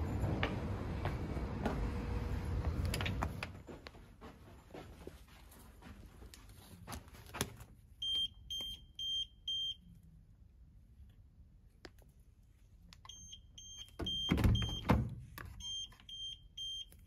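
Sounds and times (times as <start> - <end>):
key-card lock beeping: 13.1 - 14.9, 15.6 - 17.0.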